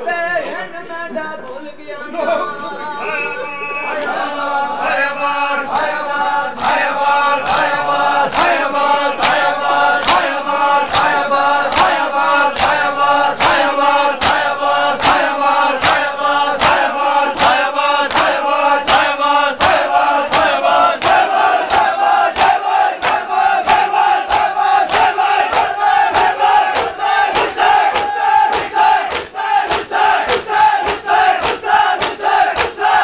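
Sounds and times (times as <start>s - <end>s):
group chanting in unison: 2.2s - 33.0s
hands beating on chests: 7.4s - 33.0s.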